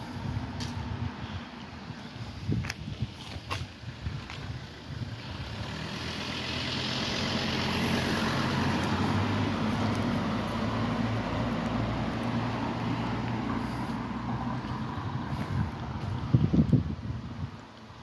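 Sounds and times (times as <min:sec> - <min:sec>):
tyres on paving: 0:00.0 - 0:18.0
car engine: 0:03.6 - 0:16.5.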